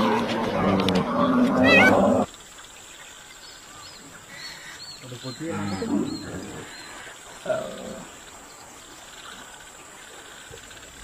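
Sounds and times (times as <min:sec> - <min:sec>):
animal call: 0:00.0 - 0:02.3.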